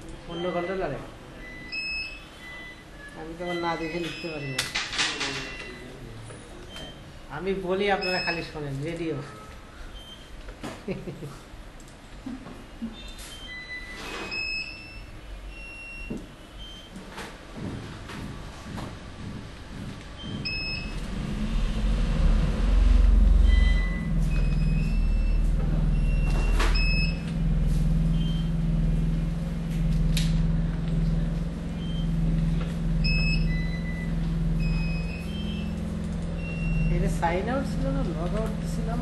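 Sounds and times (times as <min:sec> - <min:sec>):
steady low hum: 0:13.5 - 0:39.0
high-pitched beeps: 0:20.2 - 0:28.8, 0:31.7 - 0:38.3.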